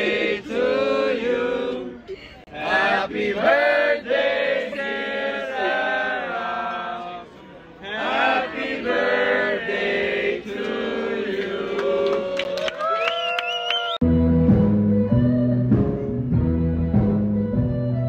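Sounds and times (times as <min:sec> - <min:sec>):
group singing birthday song: 0:00.0 - 0:12.6.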